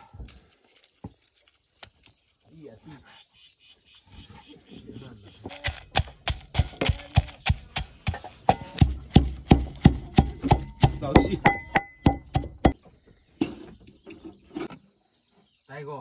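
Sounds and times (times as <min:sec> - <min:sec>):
pestle pounding in a metal bowl: 0:05.6 - 0:12.8.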